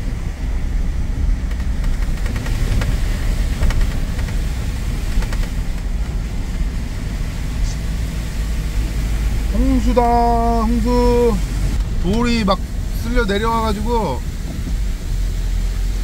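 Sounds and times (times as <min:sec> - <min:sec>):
car engine and tyres rumbling: 0:00.0 - 0:16.0.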